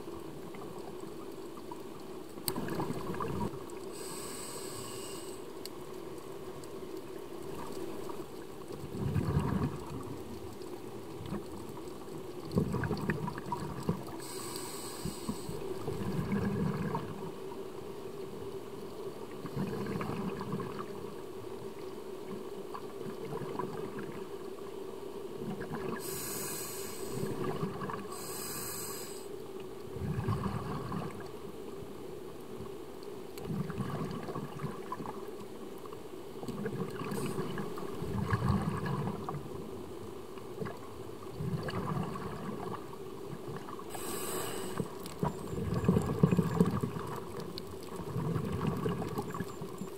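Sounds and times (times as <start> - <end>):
hissing regulator inhalations: 3.9 - 5.5, 14.2 - 15.6, 26.0 - 27.3, 28.1 - 29.3, 43.9 - 45.0
bubbling exhalations: 8.9 - 10.1, 43.9 - 49.5.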